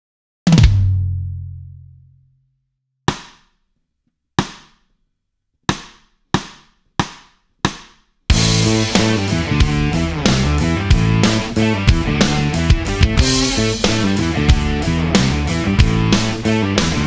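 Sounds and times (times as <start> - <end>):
rock backing track: 8.3 - 17.0.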